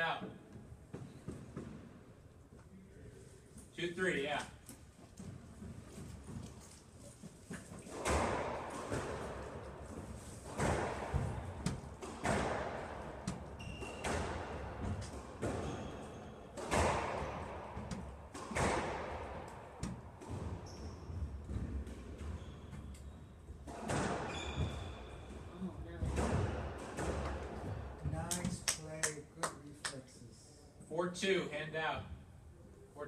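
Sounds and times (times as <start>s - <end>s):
ball smacking court walls: 7.2s - 25.0s, 26.0s - 28.6s
squash ball hit by racket: 7.8s - 22.9s, 23.6s - 25.0s, 26.0s - 27.9s.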